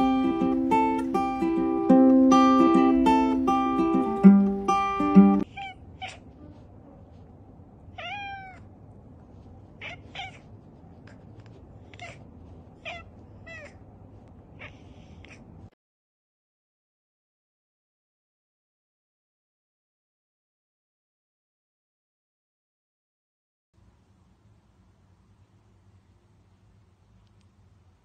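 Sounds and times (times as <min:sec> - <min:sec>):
plucked string music: 0:00.0 - 0:05.4
cat meowing: 0:05.4 - 0:06.6, 0:07.9 - 0:08.7, 0:09.8 - 0:10.5, 0:11.8 - 0:13.8, 0:14.6 - 0:15.5.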